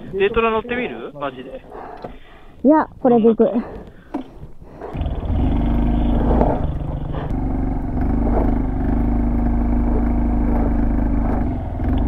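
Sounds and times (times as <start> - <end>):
small motorcycle engine revving: 4.9 - 12.0.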